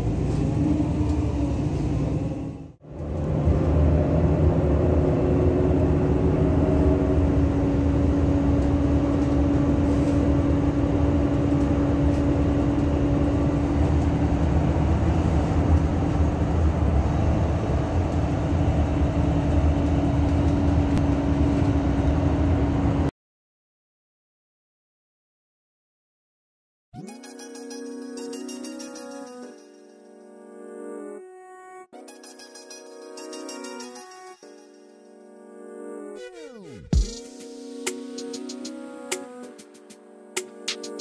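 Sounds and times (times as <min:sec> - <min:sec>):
bus engine hum: 0:00.0 - 0:23.1
road noise: 0:00.0 - 0:23.1.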